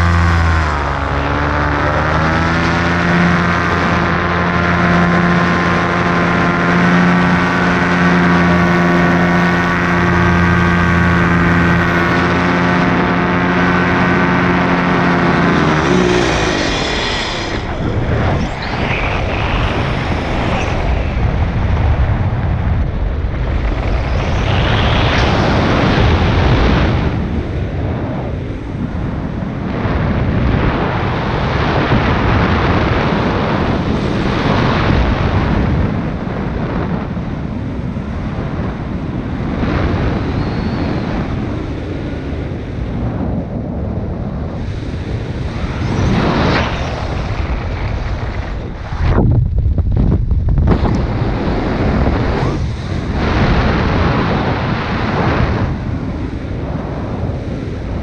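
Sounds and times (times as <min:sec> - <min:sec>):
paramotor engine running: 0:00.0 - 0:22.2
wind rushing over microphone: 0:00.0 - 0:58.0.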